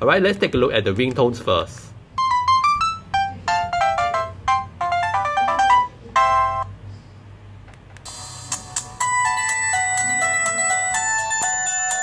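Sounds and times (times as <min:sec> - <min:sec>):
electronic phone ringtone melody: 0:02.2 - 0:06.7, 0:09.0 - 0:12.0.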